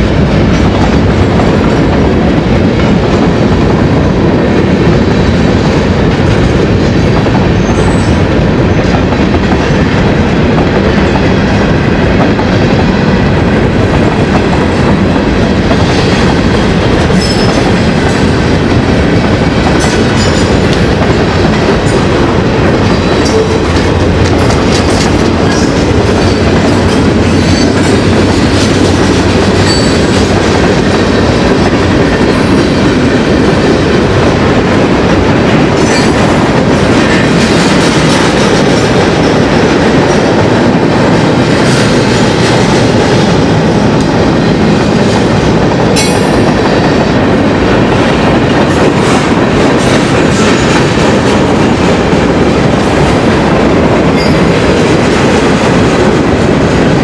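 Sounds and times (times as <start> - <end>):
freight train rumbling past: 0.0 - 57.0
wheels clacking over rails: 11.8 - 57.0.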